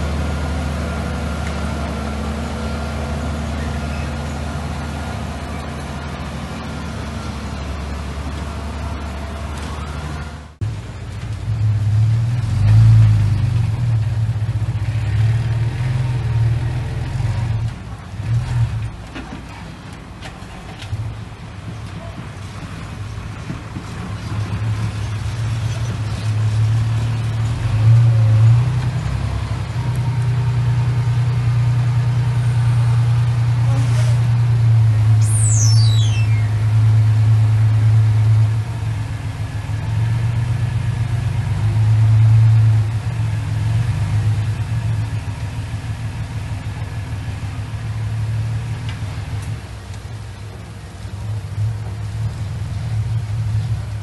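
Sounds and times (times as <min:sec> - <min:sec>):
dump truck engine under load: 0:00.0 - 0:54.0
short high falling chirp: 0:35.2 - 0:36.6.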